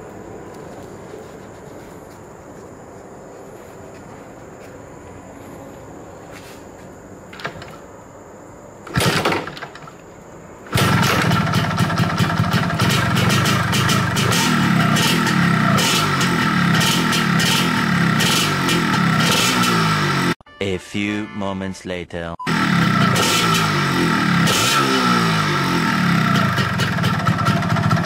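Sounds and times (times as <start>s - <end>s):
two-stroke engine starting: 8.8s - 10.0s, 10.7s - 20.4s, 22.5s - 28.0s.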